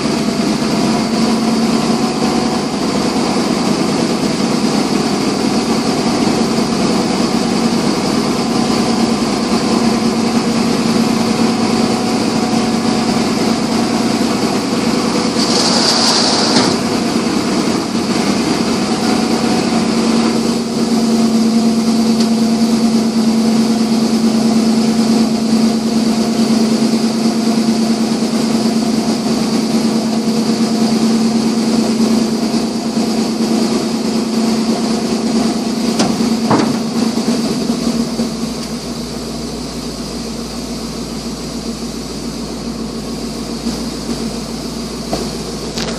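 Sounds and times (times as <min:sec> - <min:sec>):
truck engine humming: 0:00.0 - 0:45.9
single knock: 0:36.0 - 0:36.9.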